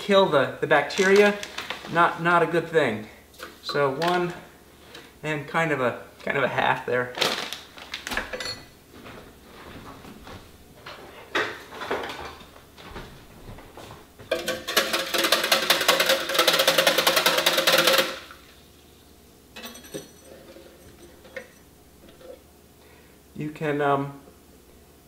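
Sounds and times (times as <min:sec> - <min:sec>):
whisk clattering in plastic container: 0:14.3 - 0:18.3.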